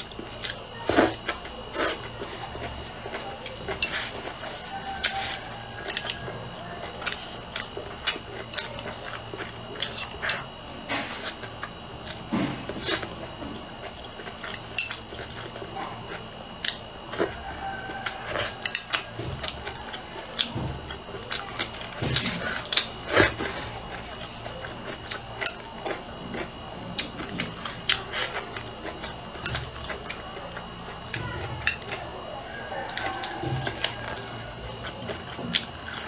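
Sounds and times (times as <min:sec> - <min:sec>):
chewing and mouth sounds: 0:00.0 - 0:36.0
chopsticks clicking against a bowl: 0:03.1 - 0:06.4, 0:18.0 - 0:22.0, 0:24.2 - 0:26.0.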